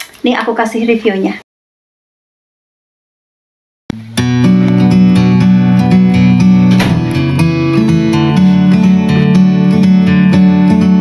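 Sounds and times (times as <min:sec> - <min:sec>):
strummed acoustic guitar: 0:03.9 - 0:11.0.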